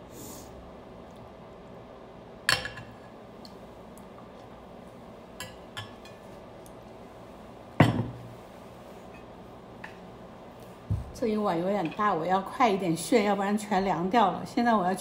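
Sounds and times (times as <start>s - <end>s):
dishware clattering on table: 7.8s - 8.2s.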